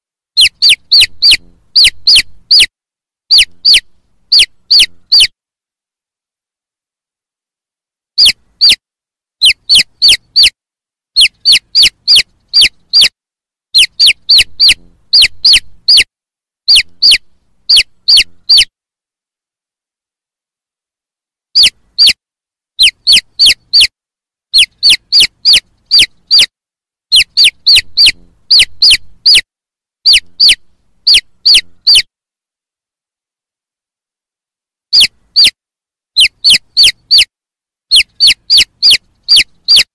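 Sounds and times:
baby chicks peeping: 0:00.4 - 0:02.7, 0:03.3 - 0:05.3, 0:08.2 - 0:08.8, 0:09.4 - 0:10.6, 0:11.2 - 0:13.1, 0:13.7 - 0:16.1, 0:16.7 - 0:18.7, 0:21.6 - 0:22.2, 0:22.8 - 0:23.9, 0:24.5 - 0:26.5, 0:27.1 - 0:29.4, 0:30.0 - 0:32.1, 0:34.9 - 0:35.6, 0:36.2 - 0:37.3, 0:37.9 - 0:39.9.

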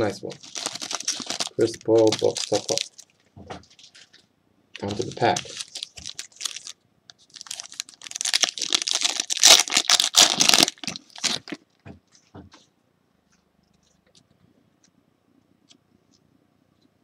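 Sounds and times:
foil wrapper tearing and crinkling: 0:00.3 - 0:03.1, 0:04.8 - 0:11.6.

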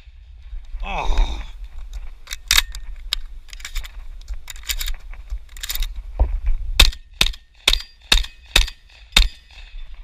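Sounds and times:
shotgun metallic clicks and clacks: 0:02.2 - 0:06.0, 0:06.8 - 0:09.8.

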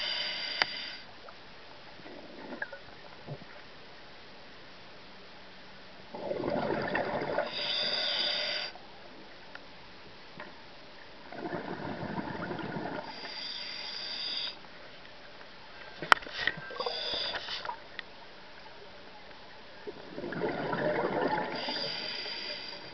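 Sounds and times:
diver breathing through regulator: 0:00.0 - 0:01.1, 0:07.4 - 0:08.8, 0:12.9 - 0:14.6, 0:16.4 - 0:17.7, 0:21.4 - 0:22.9.

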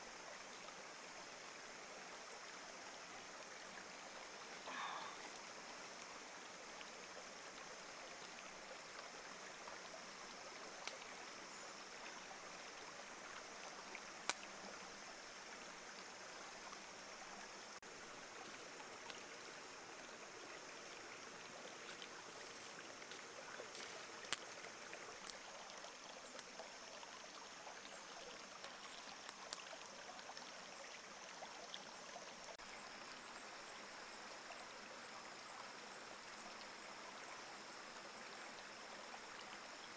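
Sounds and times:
stream water rushing: 0:00.0 - 0:39.9.

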